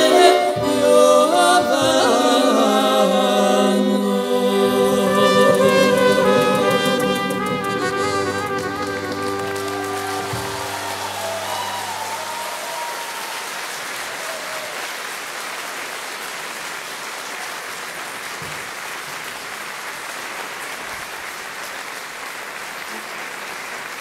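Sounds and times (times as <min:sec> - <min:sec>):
music held notes: 0:00.0 - 0:13.0
audience applauding: 0:04.3 - 0:24.0.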